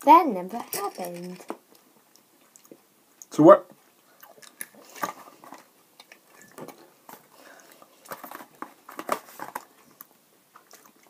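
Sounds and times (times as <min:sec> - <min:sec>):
wet chewing clicks and smacks: 0:01.7 - 0:03.3, 0:10.0 - 0:11.0.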